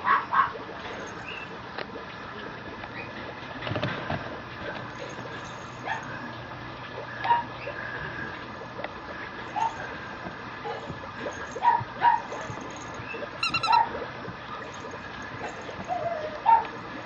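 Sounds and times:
faint steady hum: 0:00.0 - 0:17.0
puppy yipping: 0:11.6 - 0:12.5, 0:13.1 - 0:14.0, 0:15.9 - 0:16.7.

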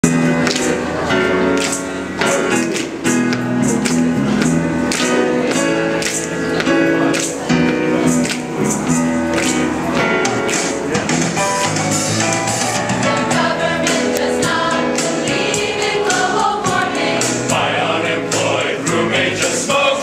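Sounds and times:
large choir singing: 0:13.0 - 0:20.0.

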